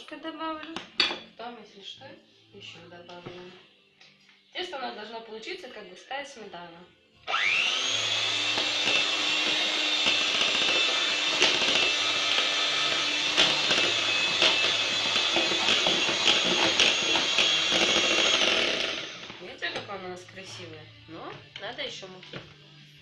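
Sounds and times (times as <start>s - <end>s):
electric hand mixer running: 7.3s - 19.4s.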